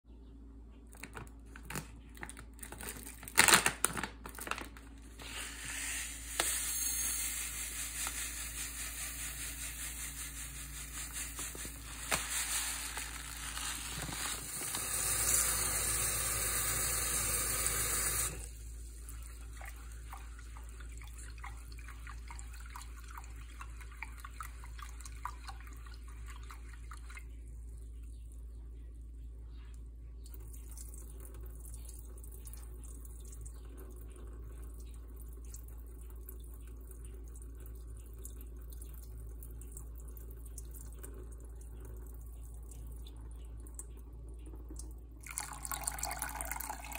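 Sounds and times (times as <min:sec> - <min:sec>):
tap water running: 0:04.4 - 0:27.4, 0:30.3 - 0:46.9
hand swishing grains in water: 0:05.1 - 0:15.4
grains clattering into pot: 0:05.2 - 0:15.7.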